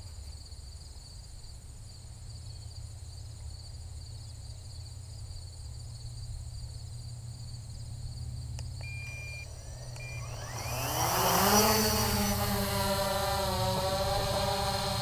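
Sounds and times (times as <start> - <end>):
drone propellers whining: 8.7 - 15.0
short high beeps: 8.8 - 10.3.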